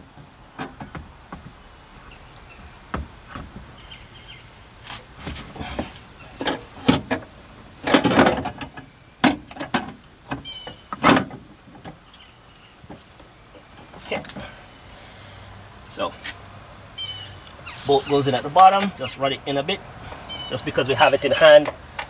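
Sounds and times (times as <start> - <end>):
knocks clunks and scrapes: 0.0 - 1.7, 2.9 - 3.8, 4.8 - 12.0, 12.8 - 14.6.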